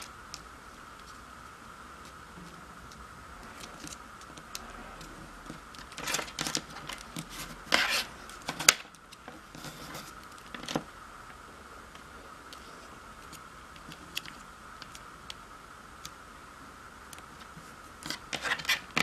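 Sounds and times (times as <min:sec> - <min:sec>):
paper rustling and creasing: 0:03.5 - 0:10.8.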